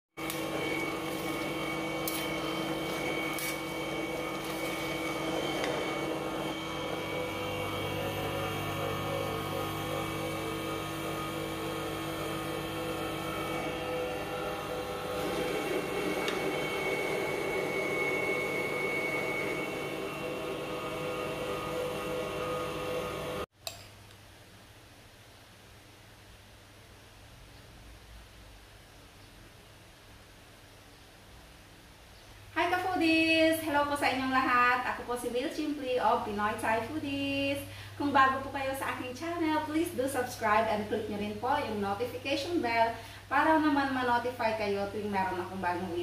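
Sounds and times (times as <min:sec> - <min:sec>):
grinder motor humming and whining: 0:00.2 - 0:23.5.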